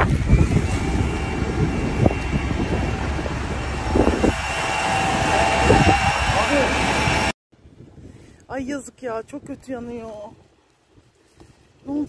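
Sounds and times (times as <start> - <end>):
faint engine-like tones: 0.0 - 7.3
low rumble: 0.0 - 7.4.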